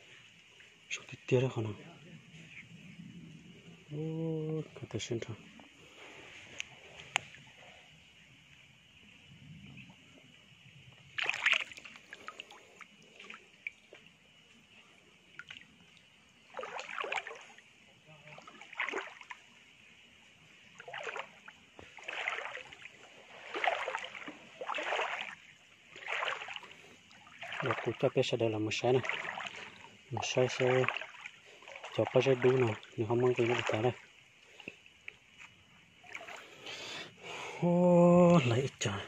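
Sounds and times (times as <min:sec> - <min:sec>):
water splashing in a stream: 0:10.9 - 0:39.0.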